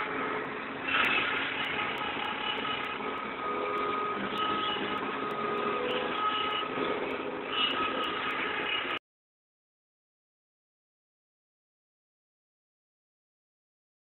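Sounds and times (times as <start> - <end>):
combine harvester clatter: 0.0 - 9.0
whining drive tones: 0.0 - 9.0.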